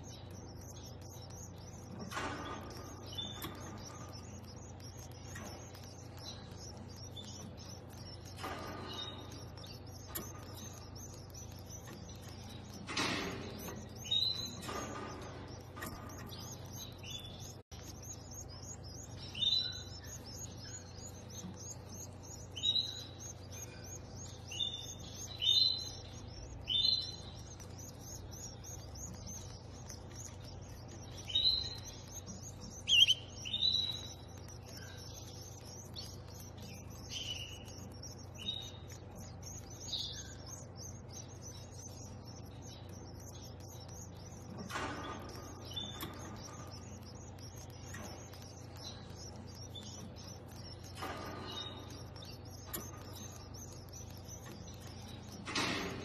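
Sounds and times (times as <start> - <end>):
canaries chirping: 0.0 - 56.0
faint low hum: 0.0 - 56.0.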